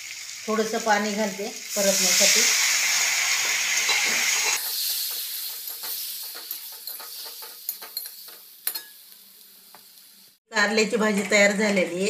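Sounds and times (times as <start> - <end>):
water sizzling in hot oil: 0.0 - 10.4
spatula tapping and scraping pan: 3.4 - 9.0.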